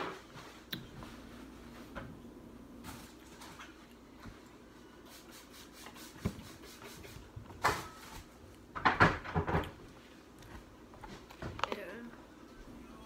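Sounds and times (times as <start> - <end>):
objects knocking on a tabletop: 8.8 - 9.7.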